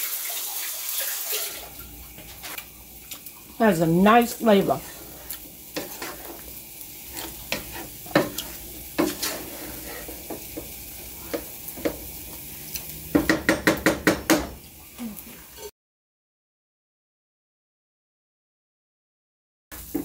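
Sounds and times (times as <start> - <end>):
wooden spoon scraping a pan: 2.2 - 2.6, 4.2 - 12.9.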